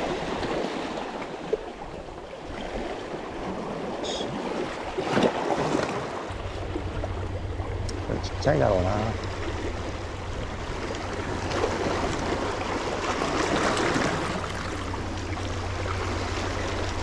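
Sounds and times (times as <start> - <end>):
sea water washing: 0.0 - 17.0
low rumble: 6.3 - 17.0.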